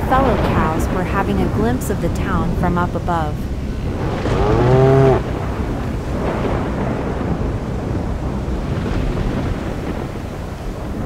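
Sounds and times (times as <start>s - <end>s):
rushing rain and storm: 0.0s - 2.6s, 3.4s - 11.0s
cow mooing: 4.2s - 5.4s.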